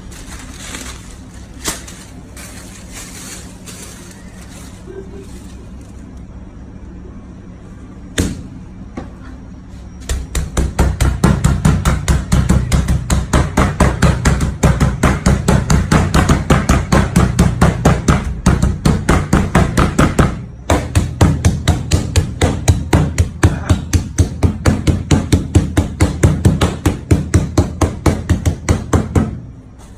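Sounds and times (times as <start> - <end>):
meat mallet pounding: 10.1 - 29.5.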